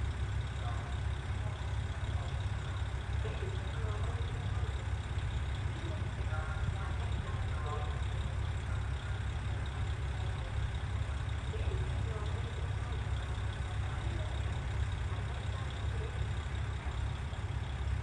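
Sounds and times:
diesel engine idling: 0.0 - 18.0.

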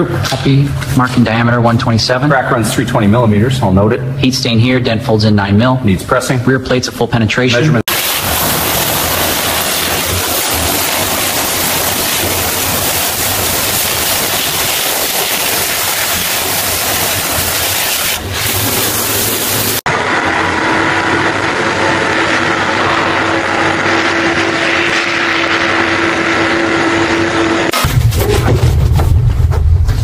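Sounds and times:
mechanical hum: 0.0 - 30.0
pressure washer spray on steel: 7.9 - 19.8.

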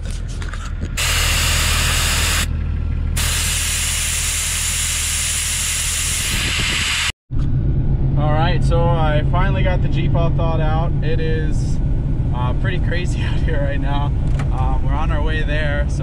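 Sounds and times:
air hissing out of a tire: 1.0 - 2.5, 3.2 - 7.1.

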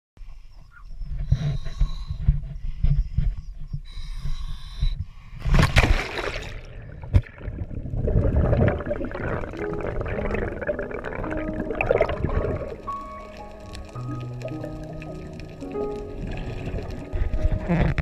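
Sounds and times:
muffled underwater rushing and bubbling: 5.5 - 18.0
loud splash into water: 5.6 - 6.6.

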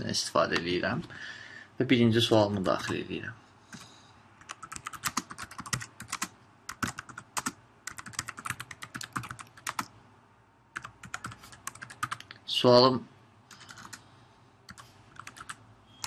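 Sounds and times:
computer keyboard typing: 4.4 - 9.9, 10.8 - 12.3, 13.5 - 14.0, 14.7 - 15.6.

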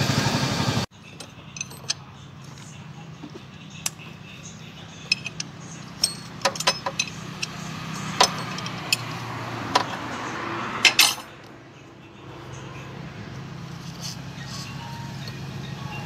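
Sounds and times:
spanner clinking on metal: 1.0 - 2.8, 4.9 - 10.2, 10.8 - 11.4.

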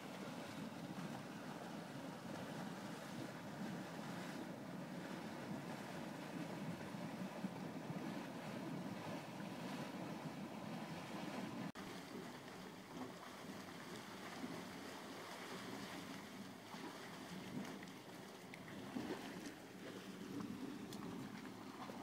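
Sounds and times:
wind on microphone: 0.0 - 11.7
churning rumbling water: 0.0 - 22.0.

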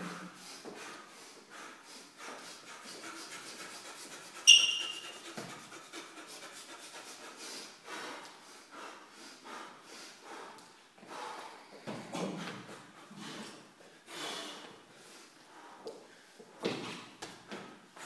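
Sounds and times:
sharp shoe squeak: 4.4 - 5.2.

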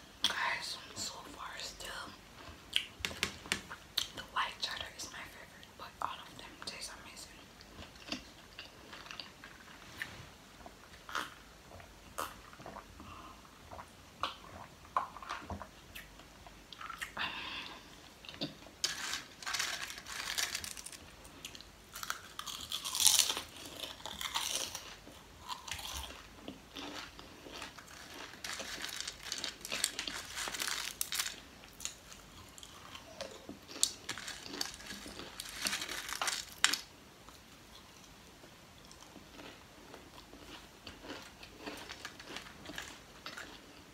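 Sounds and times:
potato chips crunching: 18.3 - 36.9, 38.8 - 43.8.

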